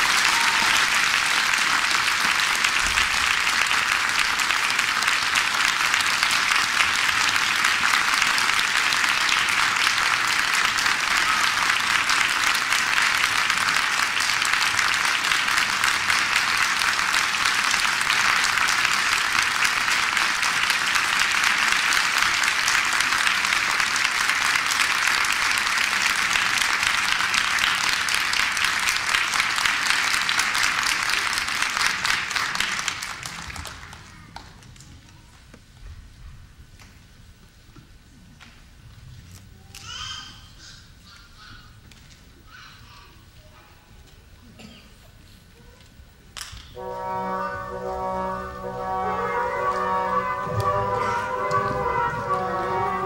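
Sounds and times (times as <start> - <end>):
audience applauding: 0.0 - 34.6, 46.8 - 53.0.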